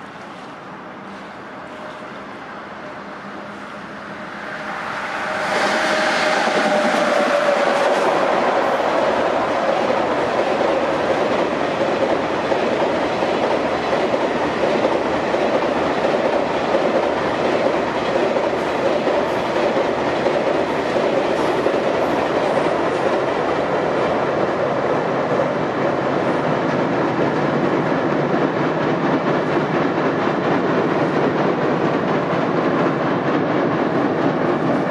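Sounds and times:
freight train wheels on rail: 0:00.0 - 0:34.9.

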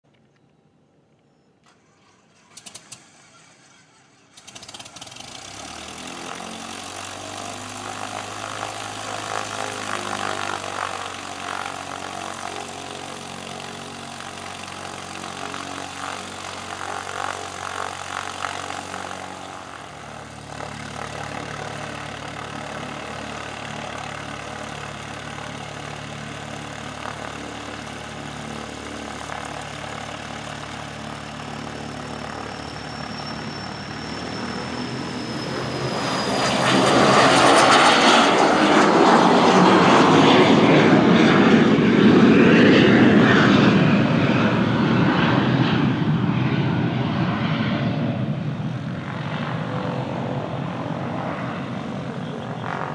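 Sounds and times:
high engine whine: 0:00.1 - 0:52.9
jet engines at takeoff: 0:00.1 - 0:52.9
jet passing with loud rush: 0:32.7 - 0:52.9.

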